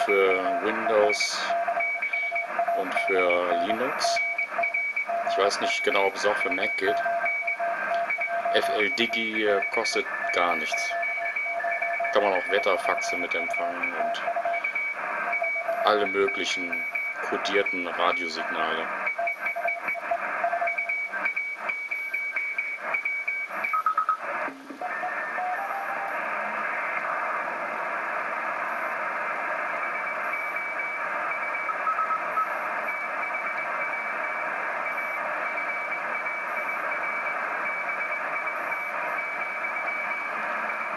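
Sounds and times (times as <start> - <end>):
morse code tones: 0.0 - 26.3, 29.8 - 40.9
crackling clicks: 7.8 - 8.2
radio receiver hiss: 24.3 - 30.5.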